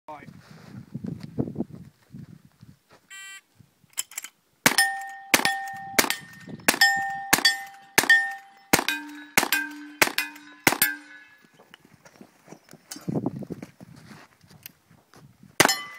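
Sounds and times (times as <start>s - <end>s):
steel plate target clanging: 4.0s - 11.5s, 15.6s - 15.9s
rifle shots: 4.6s - 11.2s.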